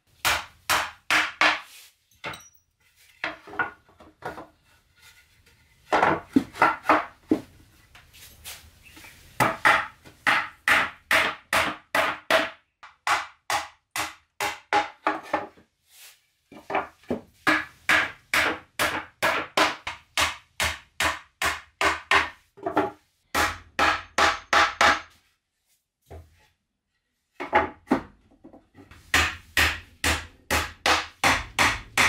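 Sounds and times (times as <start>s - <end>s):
hand tool striking wood: 0.2s - 1.7s, 5.9s - 7.5s, 9.4s - 15.5s, 16.6s - 25.2s, 28.9s - 32.0s.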